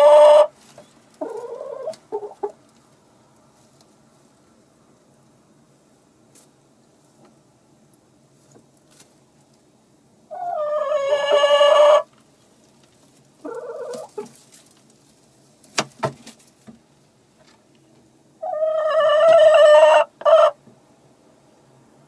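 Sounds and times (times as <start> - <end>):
hen calling: 10.3 - 12.1, 13.4 - 14.3.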